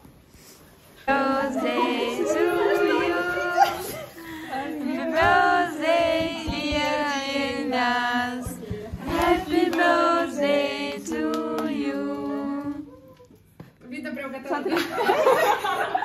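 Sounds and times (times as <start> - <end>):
young female voices singing: 1.0 - 13.2.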